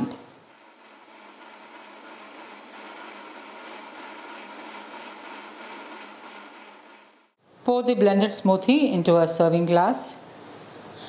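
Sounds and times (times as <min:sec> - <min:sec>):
mixer grinder whirring: 0:00.0 - 0:07.4.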